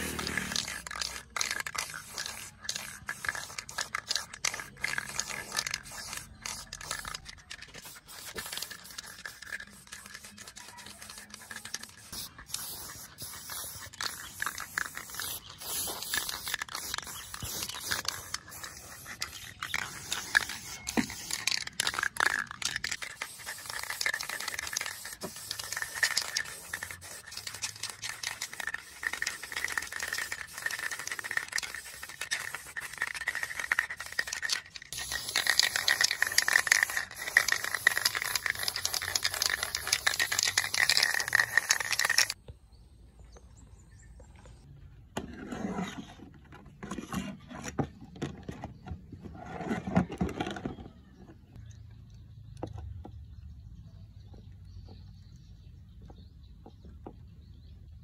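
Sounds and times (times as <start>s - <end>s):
spray paint can hissing in bursts: 0.0s - 42.4s.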